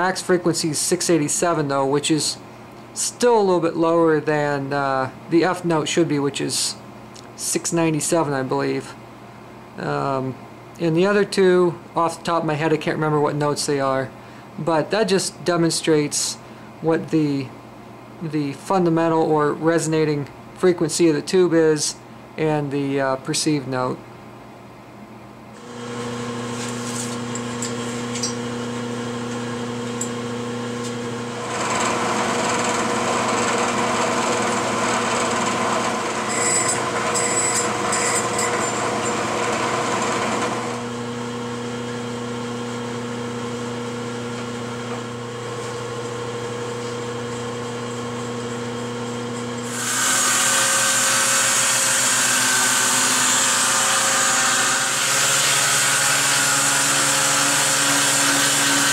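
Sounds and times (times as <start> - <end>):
drill press drilling metal: 30.8 - 41.0
electric palm sander hissing: 49.6 - 50.8.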